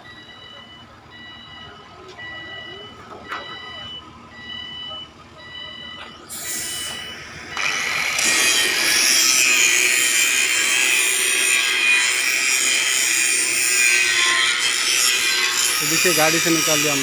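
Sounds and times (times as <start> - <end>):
angle grinder grinding steel: 6.4 - 17.0.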